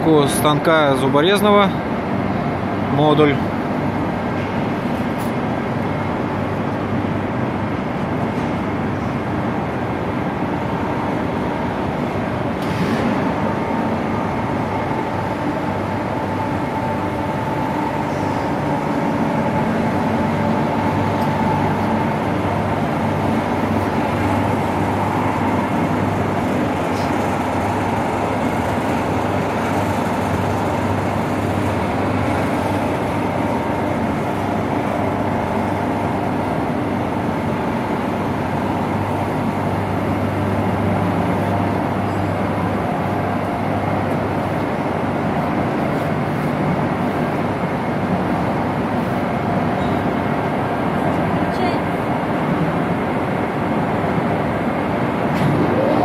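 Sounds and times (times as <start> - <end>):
heavy machinery humming: 0.0 - 56.0.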